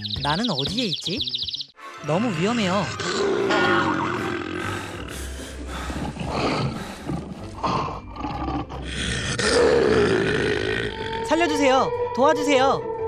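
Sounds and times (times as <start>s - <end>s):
lion roars: 2.8s - 5.2s, 5.8s - 11.2s.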